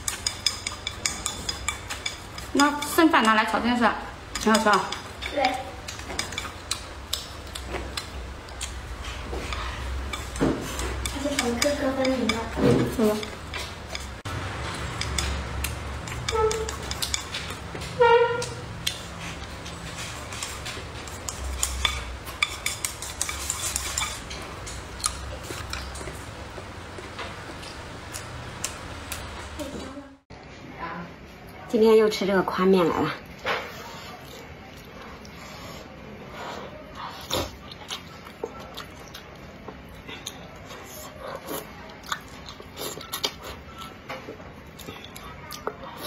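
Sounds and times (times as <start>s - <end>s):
chewing: 4.3s - 17.9s, 18.8s - 29.3s, 33.3s - 46.0s
chopsticks clicking on ceramic bowl: 14.7s - 17.6s.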